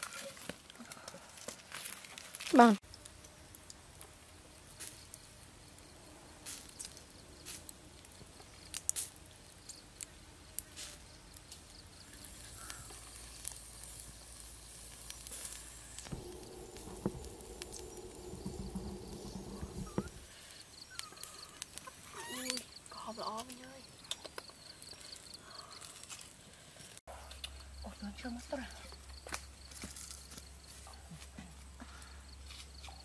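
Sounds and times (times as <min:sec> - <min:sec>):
wood fire crackling and popping: 0:00.0 - 0:25.2.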